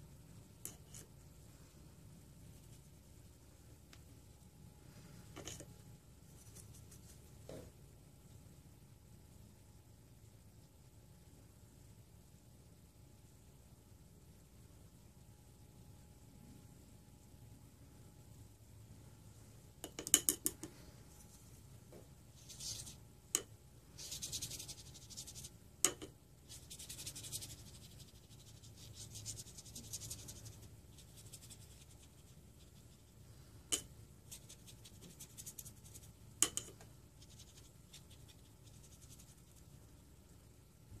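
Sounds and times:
brush scratching on paper: 22.3s - 23.0s, 24.0s - 25.6s, 26.4s - 33.2s, 34.2s - 36.2s, 37.2s - 39.9s.

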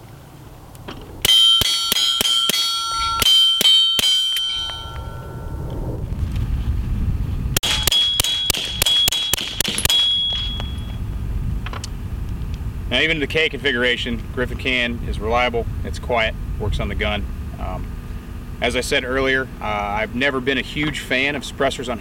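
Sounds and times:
steel targets clanging: 1.2s - 5.6s, 7.6s - 11.0s
suppressed handgun shots: 7.6s - 10.8s.

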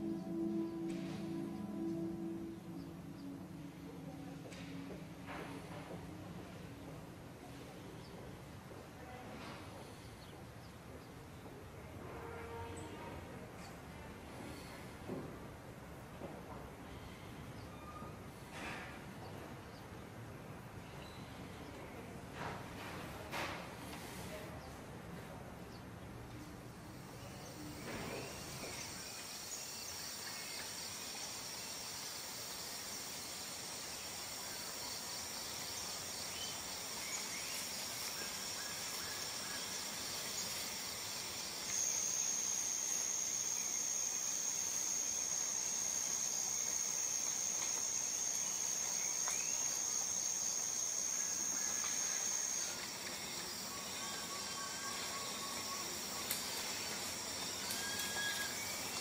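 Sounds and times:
high-pitched insect call: 0.0s - 4.5s, 26.8s - 59.0s
insects droning: 0.0s - 7.7s, 26.5s - 59.0s.

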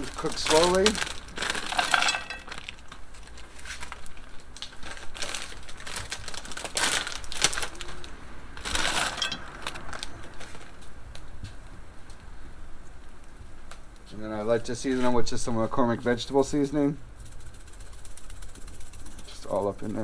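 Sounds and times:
frozen vegetables rattling into skillet: 0.0s - 7.9s, 8.6s - 10.0s
plastic bag rustling: 0.0s - 11.0s.

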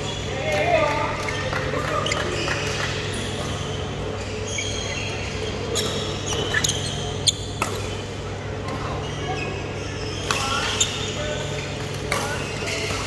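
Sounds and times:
shoes squeaking on court: 1.2s - 13.0s
rackets hitting shuttlecock: 6.3s - 9.0s.

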